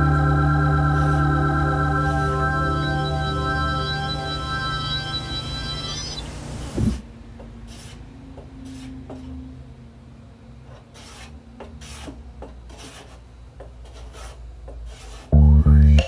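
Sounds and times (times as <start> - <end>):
hand plane shaving wood: 7.7 - 8.0, 8.6 - 9.2, 11.0 - 13.2, 13.8 - 15.4.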